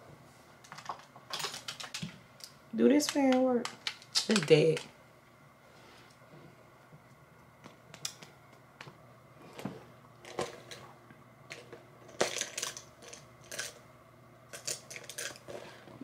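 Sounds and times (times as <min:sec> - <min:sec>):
plastic items clicking and tapping: 0:00.7 - 0:02.2, 0:03.0 - 0:04.9, 0:11.5 - 0:13.8.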